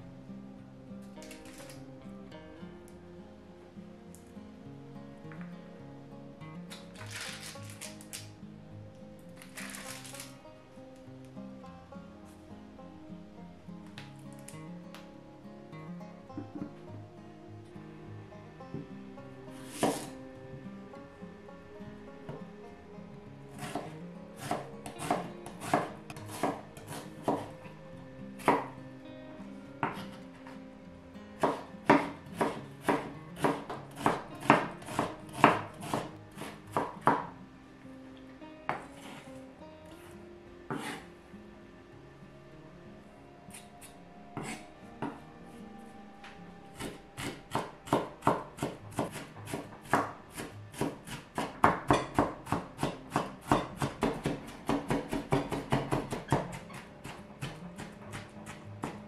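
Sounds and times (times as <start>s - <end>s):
knife chopping on wooden board: 19.7s - 20.1s, 23.6s - 27.6s, 31.4s - 37.2s, 40.7s - 41.0s, 44.4s - 45.2s, 46.8s - 59.0s.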